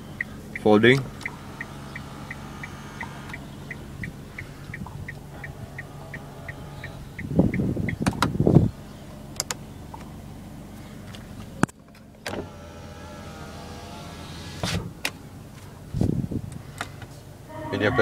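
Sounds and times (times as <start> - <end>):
sharp clicks from controls: 0.0 - 8.6, 9.3 - 10.2, 10.8 - 15.7
turn-signal ticking: 0.0 - 10.1
car engine idling: 0.0 - 18.0.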